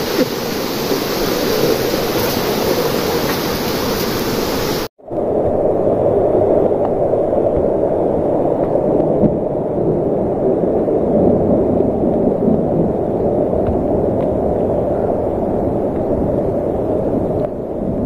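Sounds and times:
steady rushing noise: 0.0s - 18.0s.

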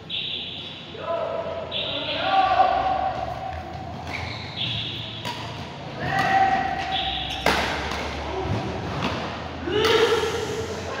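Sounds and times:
racket hitting shuttlecock: 3.5s - 8.2s
shoe squeaks on court floor: 4.0s - 5.3s.

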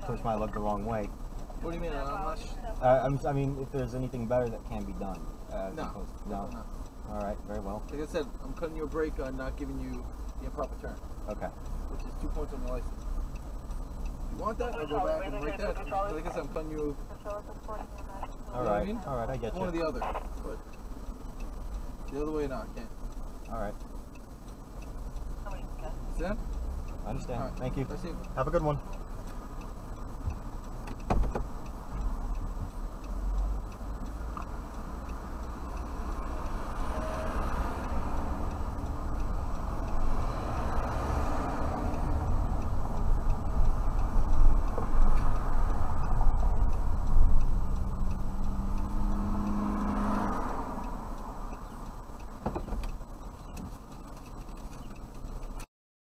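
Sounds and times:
car engine and road rumble: 0.0s - 55.7s
turn signal ticking: 0.0s - 55.7s
thump: 31.1s - 31.4s, 52.4s - 52.8s.

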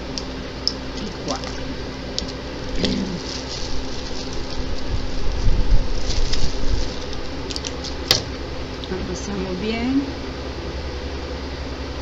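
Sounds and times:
steady low hum: 0.0s - 12.0s
plastic bag rustling: 2.6s - 8.1s.

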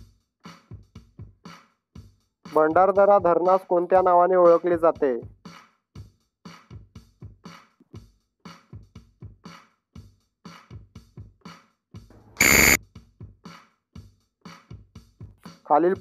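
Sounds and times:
electronic drum beat music: 0.0s - 16.0s
loud buzzer: 12.4s - 12.8s.

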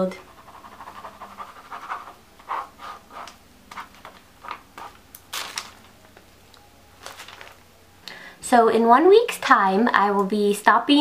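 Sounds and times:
pencil scratching on paper: 0.1s - 3.9s
paper rustle: 3.2s - 6.2s, 7.0s - 7.6s.

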